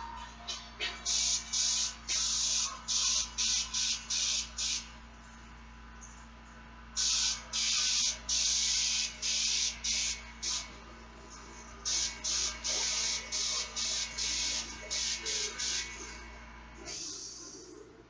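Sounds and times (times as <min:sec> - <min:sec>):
airbrush spraying hissing bursts: 0:01.0 - 0:04.9, 0:07.0 - 0:10.7, 0:11.9 - 0:16.0.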